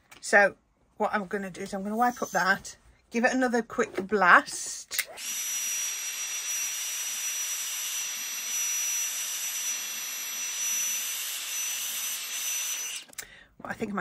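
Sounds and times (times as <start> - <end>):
heat gun blowing: 5.0 - 13.2.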